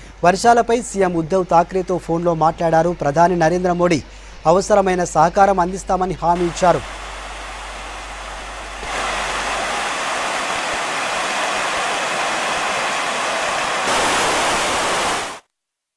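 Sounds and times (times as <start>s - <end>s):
water rushing over spillway: 6.4s - 15.4s.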